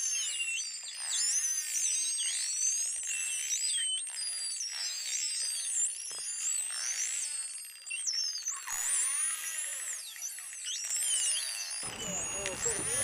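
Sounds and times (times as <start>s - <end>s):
buzzing click trains: 11.8s - 13.0s
whales whistling underwater: 11.8s - 13.0s.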